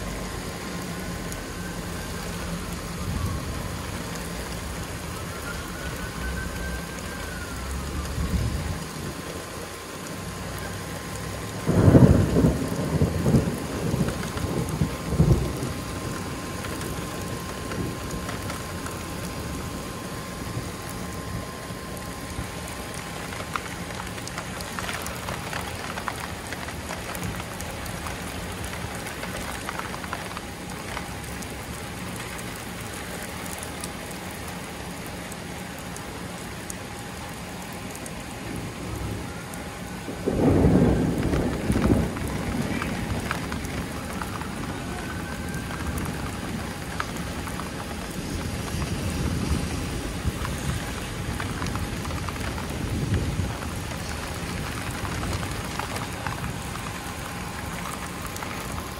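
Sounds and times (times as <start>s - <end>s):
thunder rumbling: 0.0s - 33.6s, 38.0s - 58.9s
steady rain falling: 0.0s - 58.9s.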